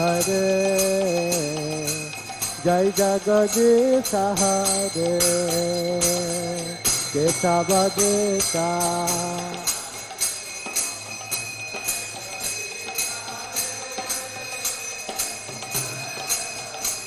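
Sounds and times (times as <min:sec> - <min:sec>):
bright metallic ringing: 0:00.0 - 0:17.0
hand cymbals struck rhythmically: 0:00.0 - 0:17.0.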